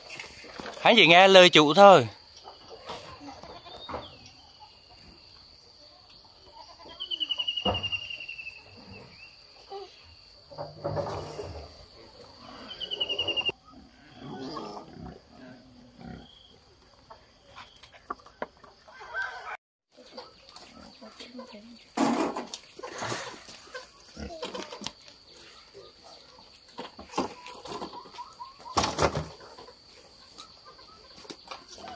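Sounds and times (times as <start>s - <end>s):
pigs and goats grunting: 8.6s - 16.6s, 20.6s - 26.4s, 31.6s - 31.9s.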